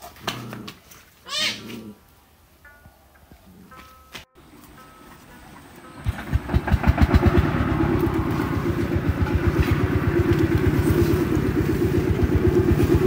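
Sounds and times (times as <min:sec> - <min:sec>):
engine chugging: 0:05.0 - 0:13.0.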